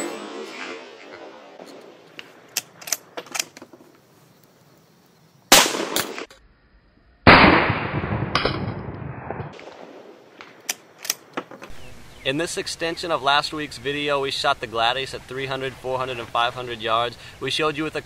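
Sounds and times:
rifle shots: 5.5s - 6.3s, 7.3s - 11.3s.

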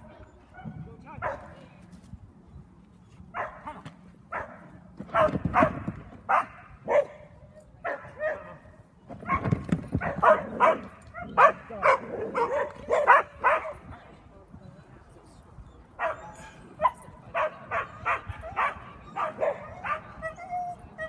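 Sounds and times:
dog barking: 3.4s - 7.2s, 7.8s - 8.6s, 9.2s - 13.8s, 16.0s - 16.2s, 16.8s - 20.1s.

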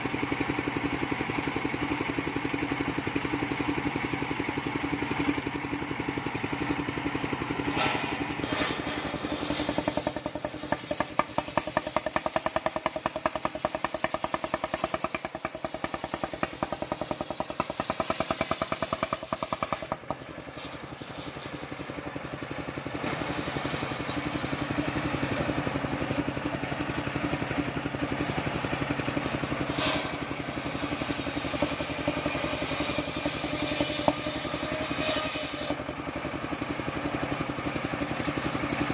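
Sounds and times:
saw engine running: 0.0s - 38.9s
circular saw cutting log: 7.4s - 21.6s, 29.2s - 35.9s.

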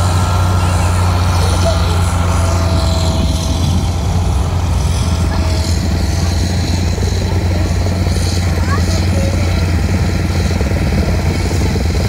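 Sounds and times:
snow groomer engine running: 0.0s - 12.0s.

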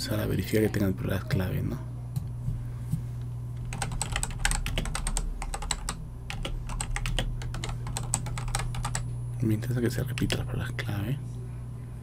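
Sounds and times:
steady low hum: 0.0s - 12.0s
keyboard typing clicks: 3.6s - 9.0s.

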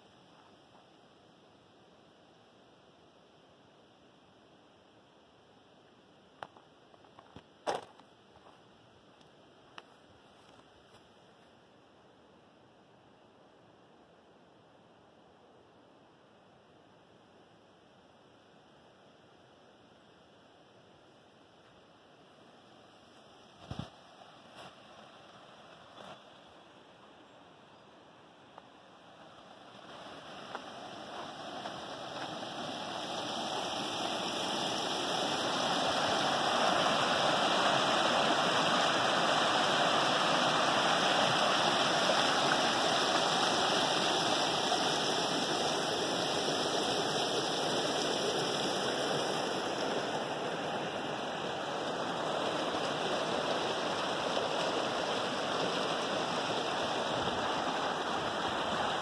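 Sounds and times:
stream rushing over rocks: 28.4s - 59.0s.

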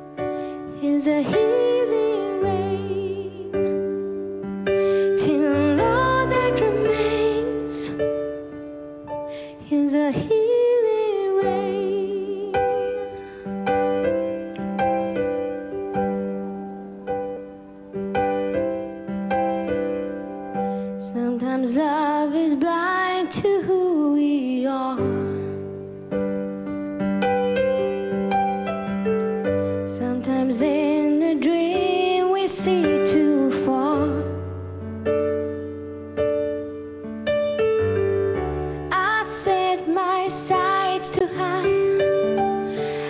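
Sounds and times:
woman singing: 0.7s - 4.0s, 5.0s - 8.2s, 9.4s - 13.2s, 21.0s - 25.6s, 29.9s - 34.4s, 38.9s - 42.4s.

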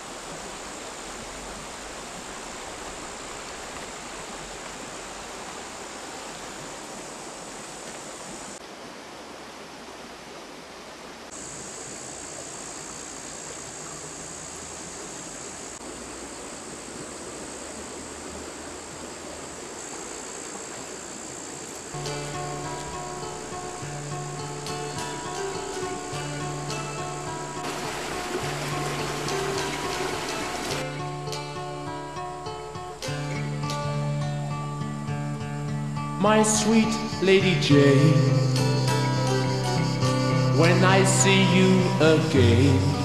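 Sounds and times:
river water rushing over stones: 0.0s - 33.3s.

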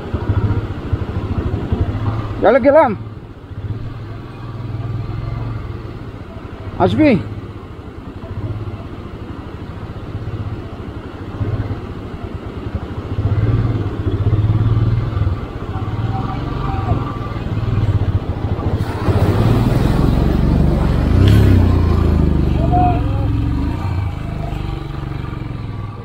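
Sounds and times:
motorcycle engine revving: 0.0s - 7.5s, 8.1s - 26.0s
rushing water: 15.4s - 26.0s.

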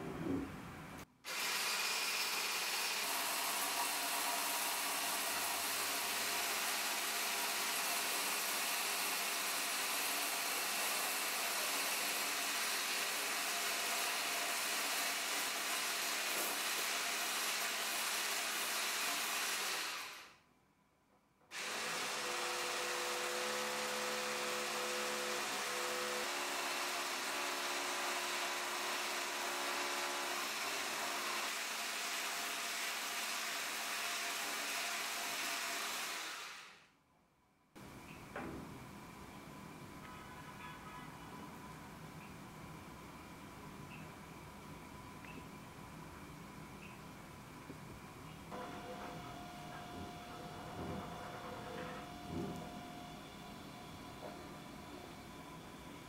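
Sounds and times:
electric hand mixer whirring: 1.3s - 8.3s, 21.5s - 32.1s, 34.4s - 36.8s.

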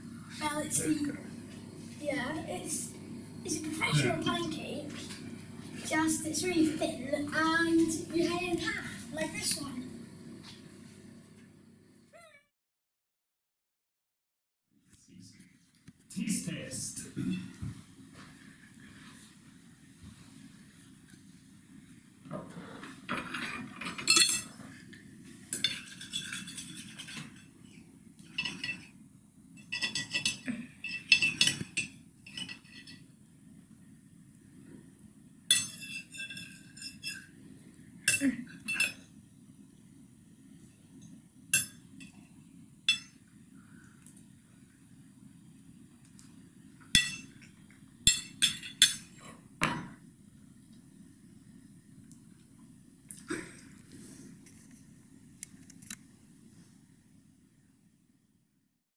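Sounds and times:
cutlery scraping a plate: 22.7s - 24.6s, 25.5s - 27.6s, 28.2s - 28.9s, 29.6s - 33.0s, 35.5s - 37.3s.

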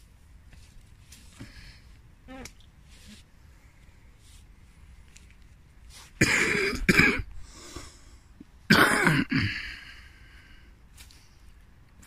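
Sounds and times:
man coughing: 6.2s - 7.3s, 8.7s - 9.8s.

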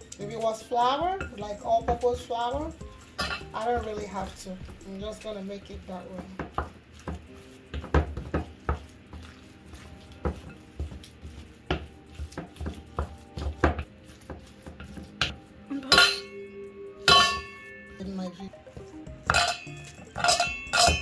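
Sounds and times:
spatula scraping glass bowl: 6.1s - 16.4s, 19.2s - 21.0s
clinks with bowl ringing: 15.9s - 18.2s, 19.3s - 21.0s.

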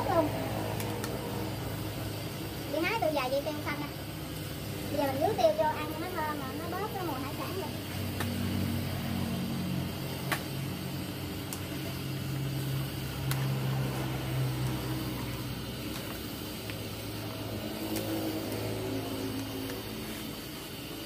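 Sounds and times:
food sizzling in a wok: 0.0s - 21.0s
low engine-like hum: 0.0s - 21.0s.

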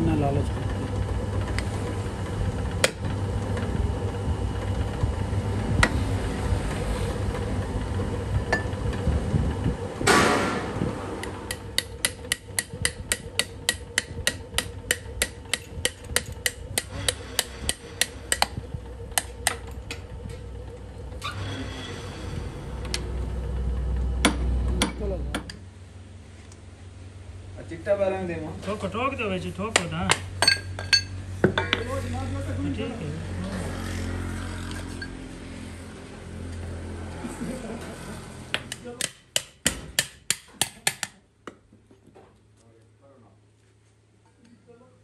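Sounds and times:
machine hum: 0.0s - 39.6s
hammer tapping metal: 11.2s - 18.6s, 38.6s - 41.2s.

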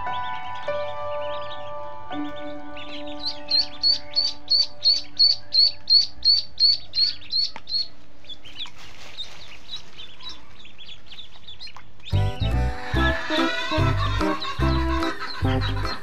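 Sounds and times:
ducklings peeping: 0.0s - 16.0s.

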